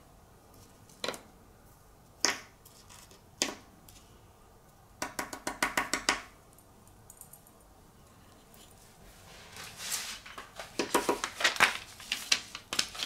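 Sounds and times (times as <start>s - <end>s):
sharp taps on acrylic: 5.0s - 6.3s.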